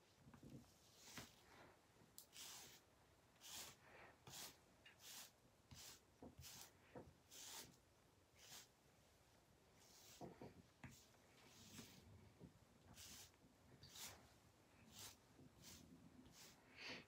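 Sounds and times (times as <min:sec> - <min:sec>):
hairbrush strokes through hair: 0:02.3 - 0:02.8, 0:03.4 - 0:06.7, 0:08.4 - 0:08.7, 0:13.0 - 0:14.3, 0:14.9 - 0:17.0.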